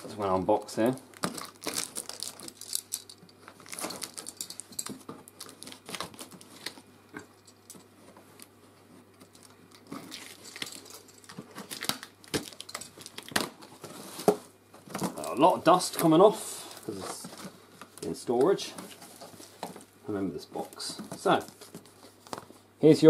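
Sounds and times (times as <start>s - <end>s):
cardboard flaps crackling: 20.5s - 22.6s.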